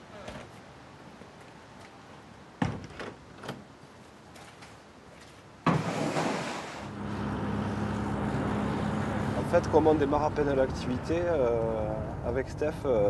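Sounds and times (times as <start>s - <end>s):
road noise: 0.0s - 13.0s
engine hum: 5.7s - 13.0s.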